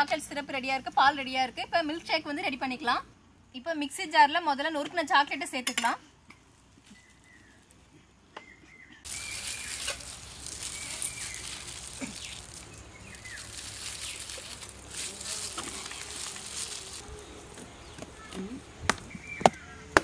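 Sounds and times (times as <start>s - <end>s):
insects buzzing: 9.1s - 18.9s.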